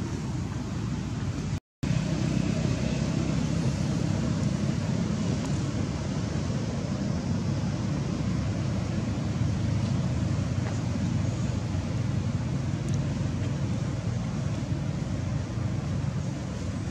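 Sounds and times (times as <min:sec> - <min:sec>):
low rumbling background noise: 0:00.0 - 0:16.9.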